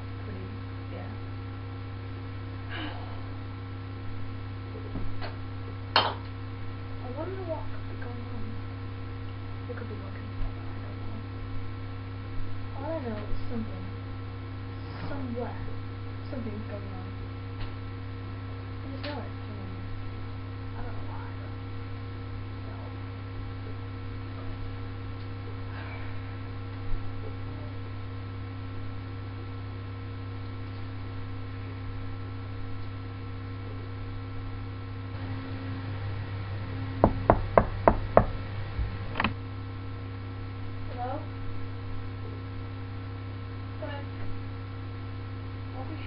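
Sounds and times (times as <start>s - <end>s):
electrical hum: 0.0s - 46.0s
sharp knocks on hard surface: 37.0s - 38.3s.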